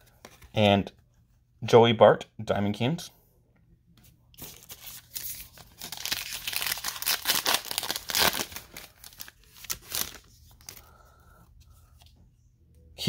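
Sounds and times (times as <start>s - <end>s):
wrapper crinkling: 4.4s - 10.9s.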